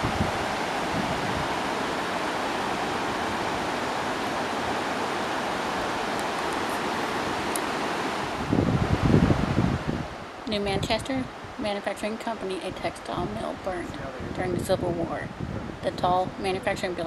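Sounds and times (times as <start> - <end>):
water rushing over rocks: 0.0 - 9.7.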